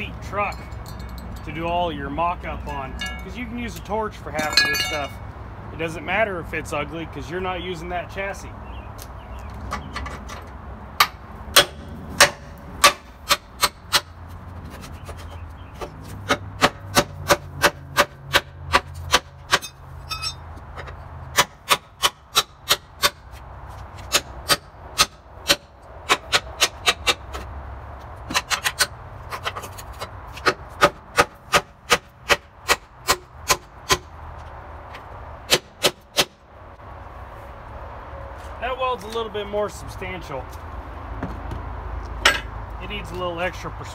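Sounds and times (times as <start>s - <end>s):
hammer striking steel: 2.9s - 3.4s, 4.4s - 5.2s.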